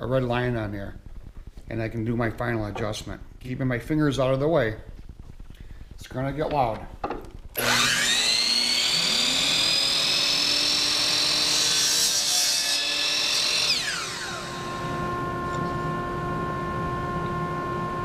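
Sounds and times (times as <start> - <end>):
miter saw whining: 7.5 - 18.0
saw blade cutting wood: 7.6 - 15.2.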